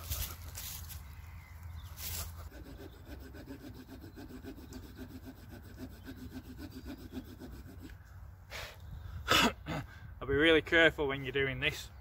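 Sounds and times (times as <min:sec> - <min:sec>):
small saw cutting wood: 0:01.9 - 0:08.1.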